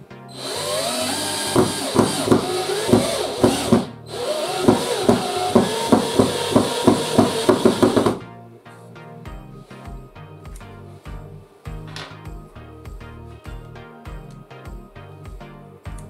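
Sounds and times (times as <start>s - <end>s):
drill motor spinning up: 0.4s - 8.2s
regular knocking of drill: 0.4s - 8.2s.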